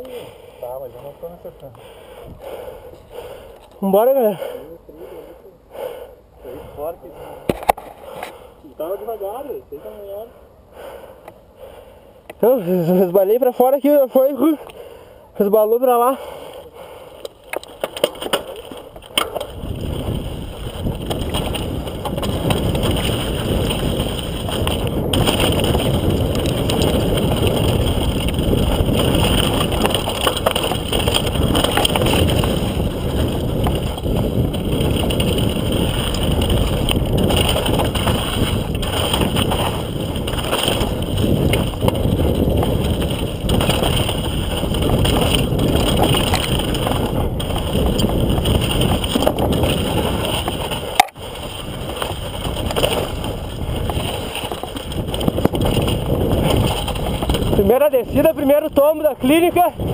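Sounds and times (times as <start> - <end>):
bike rattling over bumps: 15.7 - 59.9
tyres crunching over dirt and rock: 16.5 - 59.9
wind on the microphone: 18.5 - 59.9.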